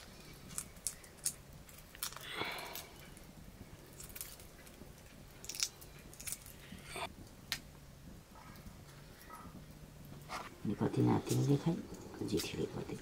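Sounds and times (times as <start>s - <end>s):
eggshell cracking: 0.0s - 6.9s.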